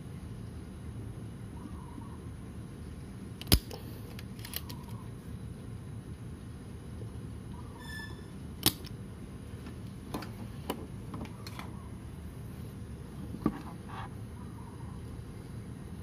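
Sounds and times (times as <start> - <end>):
steady low hum: 0.0 - 16.0
desoldering pump snap: 3.4 - 4.8, 8.6 - 9.0.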